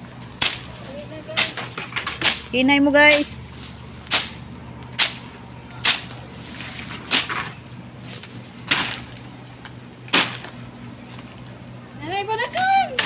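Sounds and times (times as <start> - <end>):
blade slashing through grass: 3.1 - 4.4, 5.0 - 7.5.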